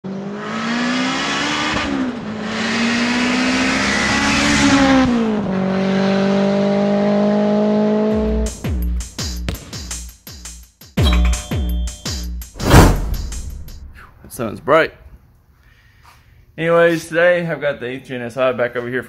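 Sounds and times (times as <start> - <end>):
car engine accelerating: 0.0 - 8.5.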